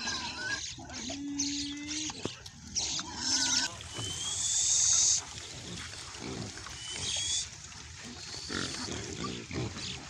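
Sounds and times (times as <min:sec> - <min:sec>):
pig squealing: 0:00.0 - 0:02.2, 0:02.8 - 0:05.2
pigs grunting: 0:00.0 - 0:10.0.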